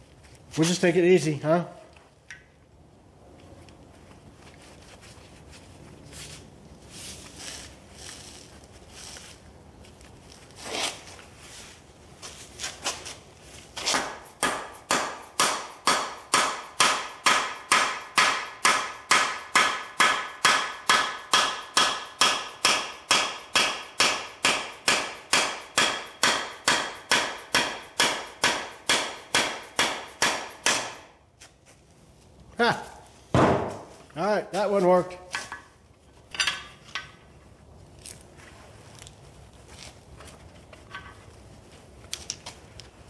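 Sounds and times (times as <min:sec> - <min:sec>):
hammer striking steel rod: 0:13.8 - 0:31.1.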